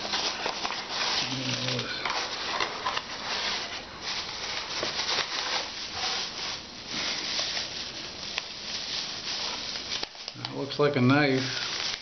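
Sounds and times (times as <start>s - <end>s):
packing wrap rustling: 0.0s - 12.0s.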